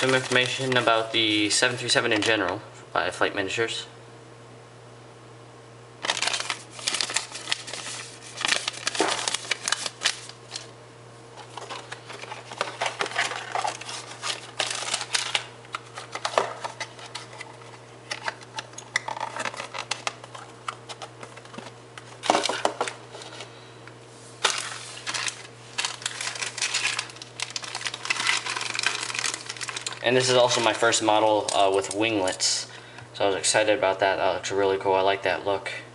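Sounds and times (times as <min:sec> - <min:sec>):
paper and packaging rustling: 0:00.0 - 0:01.2, 0:06.0 - 0:10.7, 0:11.4 - 0:23.5, 0:24.4 - 0:32.4
faint steady hum: 0:00.0 - 0:35.9.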